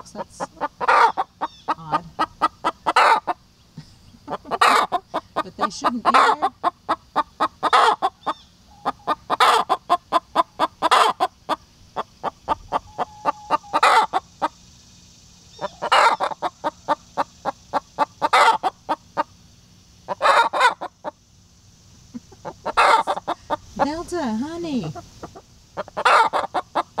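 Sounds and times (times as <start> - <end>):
hen squawking: 0.0 - 3.4, 4.5 - 11.3, 12.0 - 14.2, 15.5 - 18.8, 20.1 - 21.2, 22.4 - 27.0
hen clucking: 0.0 - 14.7, 15.4 - 19.4, 20.0 - 21.3, 21.9 - 27.0.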